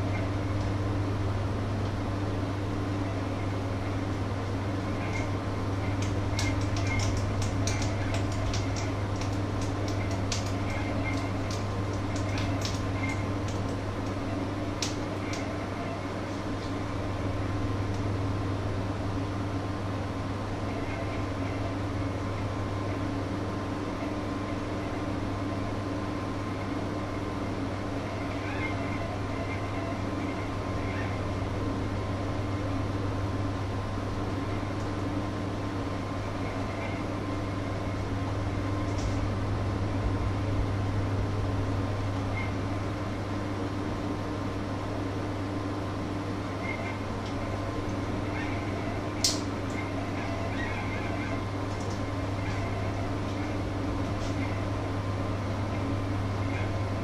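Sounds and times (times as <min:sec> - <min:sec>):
kitchen appliance humming: 0:00.0 - 0:23.9.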